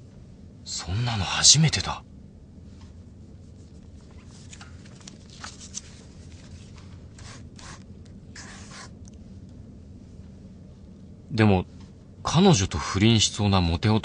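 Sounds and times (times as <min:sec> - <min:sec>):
low room hum: 0:00.0 - 0:14.0
pen scratching on paper: 0:07.2 - 0:07.8, 0:08.4 - 0:08.9.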